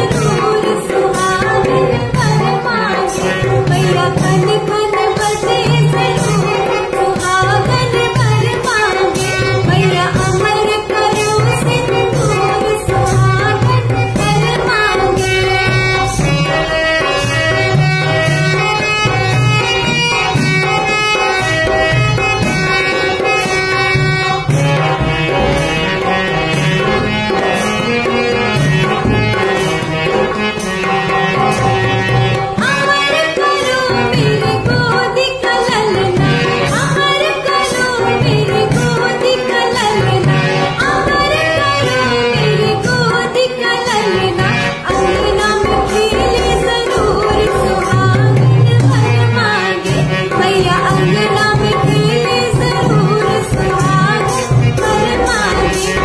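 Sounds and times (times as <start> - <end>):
woman singing a folk song: 0.0 - 15.2, 32.6 - 55.7
hand drum: 0.0 - 56.0.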